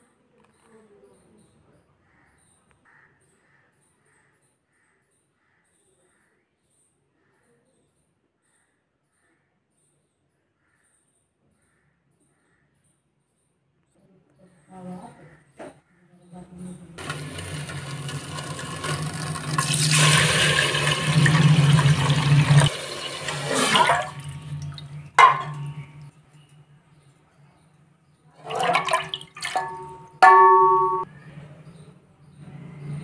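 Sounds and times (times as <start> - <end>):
water pouring into a pot: 17.0 - 26.1, 28.4 - 31.0
metal bowl clinking against pot: 23.4 - 26.1, 28.4 - 31.1.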